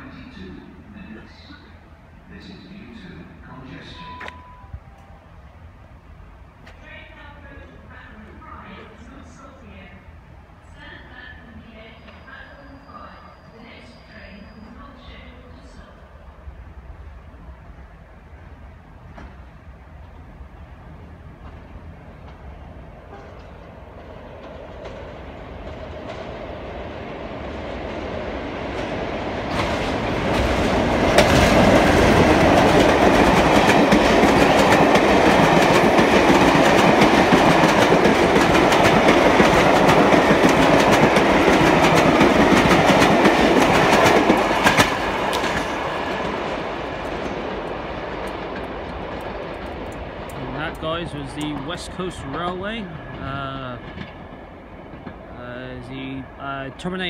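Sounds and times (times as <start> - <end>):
diesel train passing: 0.0 - 57.0.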